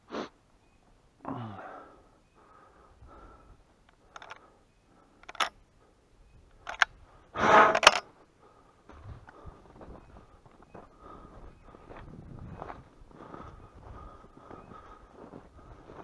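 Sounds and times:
low sigh: 0:01.2 - 0:03.6.

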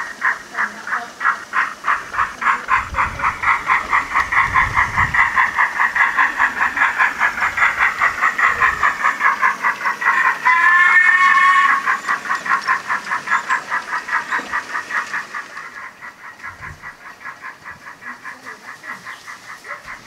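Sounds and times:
model steam locomotive chuffing: 0:00.0 - 0:20.0
locomotive whistle: 0:10.1 - 0:14.6.

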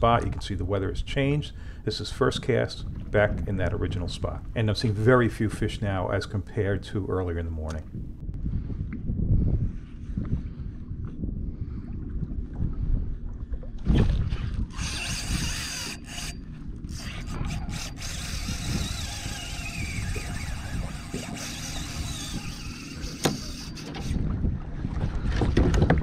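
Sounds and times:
water: 0:00.0 - 0:26.0
wind: 0:00.0 - 0:26.0
fishing reel drag buzzing: 0:14.7 - 0:24.3.

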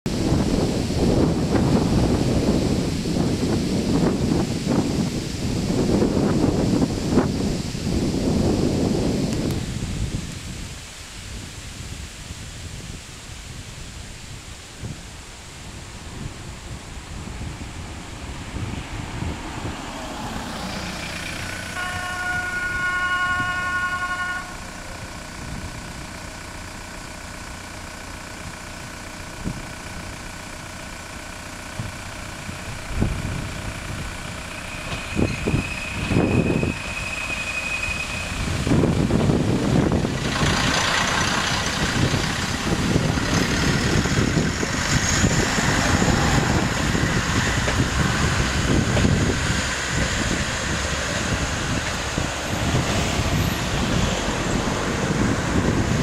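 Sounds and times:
diesel engine passing: 0:00.1 - 0:10.3, 0:15.6 - 0:56.0
single high horn tone: 0:21.3 - 0:25.2, 0:34.4 - 0:38.8
train horn chord: 0:21.6 - 0:24.9.

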